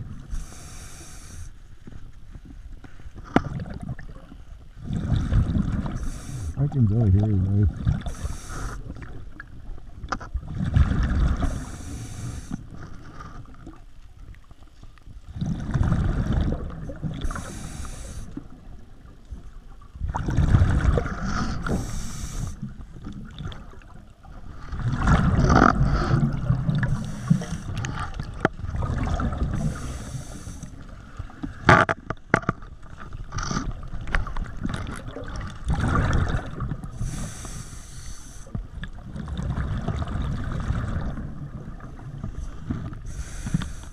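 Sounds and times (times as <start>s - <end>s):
regulator inhalation hiss: 0.4s - 1.5s, 6.0s - 6.6s, 8.1s - 8.8s, 17.3s - 18.3s, 21.8s - 22.6s, 29.7s - 30.7s
exhaled bubbles gurgling: 3.4s - 12.5s, 15.3s - 31.7s, 32.8s - 37.5s, 38.6s - 43.8s.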